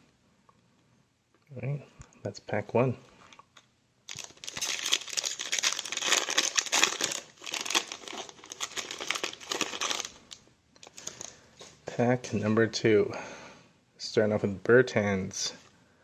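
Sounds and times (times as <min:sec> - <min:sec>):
foil wrapper crinkling and tearing: 0:04.1 - 0:11.4.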